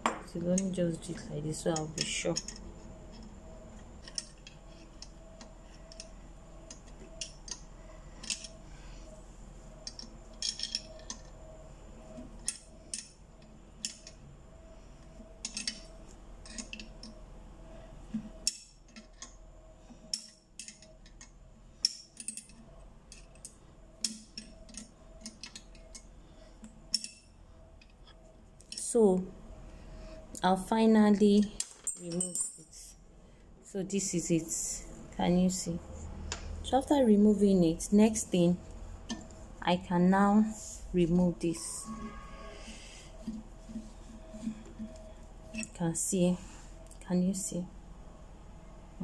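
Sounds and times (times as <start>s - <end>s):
metal spanner clinking on screw: 9.8s - 11.3s, 45.5s - 45.8s.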